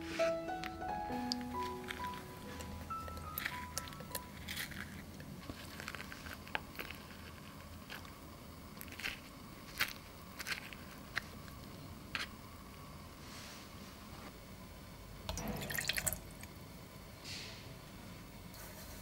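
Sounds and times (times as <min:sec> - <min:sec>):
spoon scraping fruit pulp: 0:01.4 - 0:08.2.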